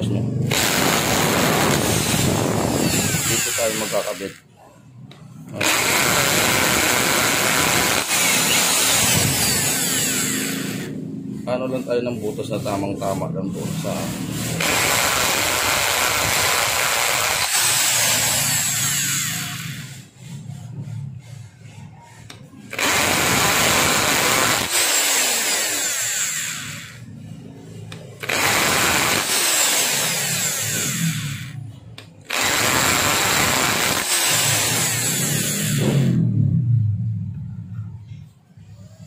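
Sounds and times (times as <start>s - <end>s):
electric drill boring through plastic: 0.5s - 4.4s, 5.5s - 11.0s, 13.8s - 20.5s, 22.2s - 27.1s, 27.9s - 31.6s, 32.3s - 36.2s.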